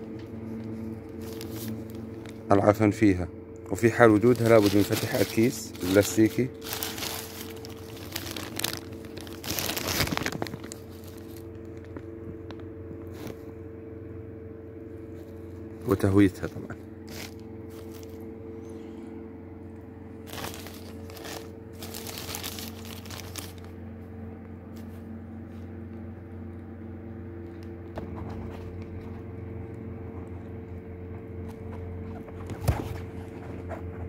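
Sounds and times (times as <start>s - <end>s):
low hum: 0.0s - 32.5s
plastic bag crinkling: 0.5s - 2.5s, 3.9s - 13.5s, 15.1s - 18.4s, 20.1s - 23.8s.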